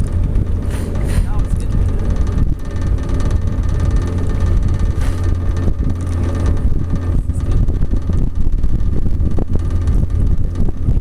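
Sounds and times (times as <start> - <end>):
outboard motor humming: 0.0 - 11.0
wind buffeting microphone: 0.0 - 11.0.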